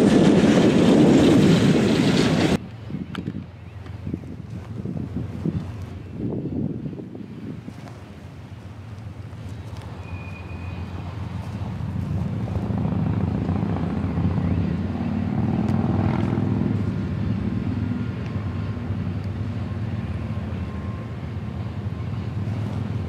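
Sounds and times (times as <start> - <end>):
wind buffeting microphone: 0.0 - 10.0
diesel locomotive engine drone: 0.0 - 23.0.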